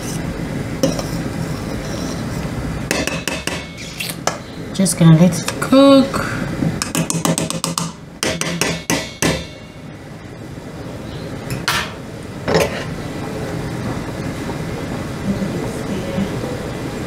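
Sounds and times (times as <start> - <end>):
pot boiling: 0.0 - 17.0
metal fork knocking on pot: 2.9 - 3.8, 6.8 - 9.7.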